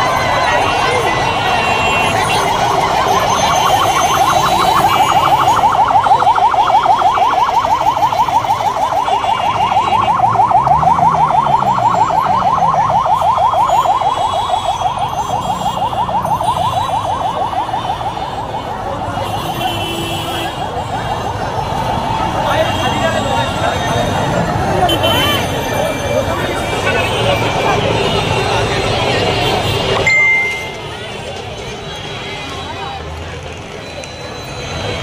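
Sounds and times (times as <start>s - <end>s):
crowd noise: 0.0s - 35.0s
street noise: 0.0s - 35.0s
electronic siren warbling: 2.2s - 18.2s.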